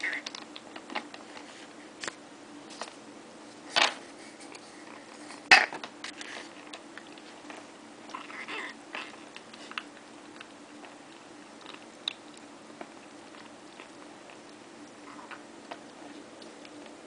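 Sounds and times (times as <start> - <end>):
kitten eating: 0.0 - 17.0
kitten vocal sounds: 8.1 - 9.2.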